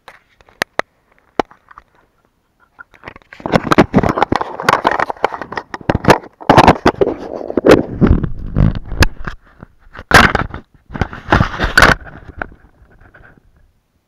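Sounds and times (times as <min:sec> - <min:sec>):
clothing rubbing on microphone: 0:06.6 - 0:13.6.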